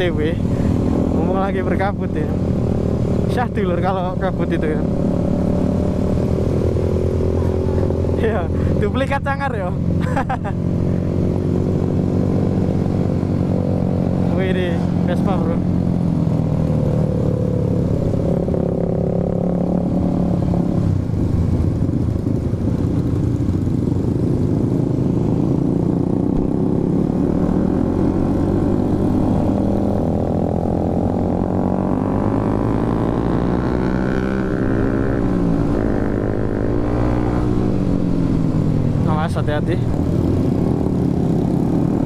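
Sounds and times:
motorcycle engine accelerating: 0.0s - 42.0s
road and wind rumble: 0.0s - 42.0s.

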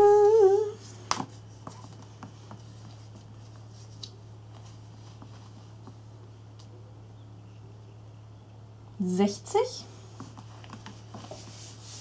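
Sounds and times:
low hum: 0.0s - 1.6s.

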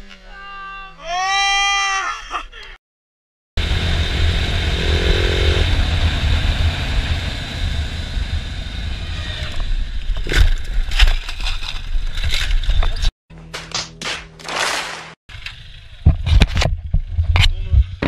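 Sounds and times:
motorcycle engine running: 3.6s - 10.4s
wind buffeting a helmet camera: 16.0s - 18.0s.

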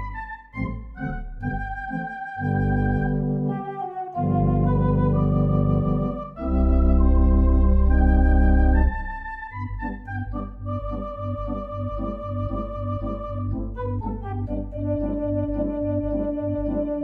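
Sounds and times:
organ chords: 0.0s - 17.0s.

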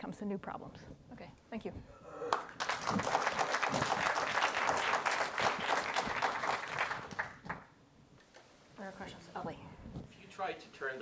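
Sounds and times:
audience applauding: 2.3s - 7.7s.

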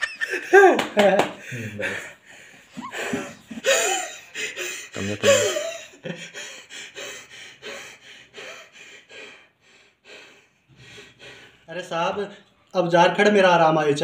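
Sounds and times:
man laughing: 0.0s - 2.2s, 2.8s - 6.7s.

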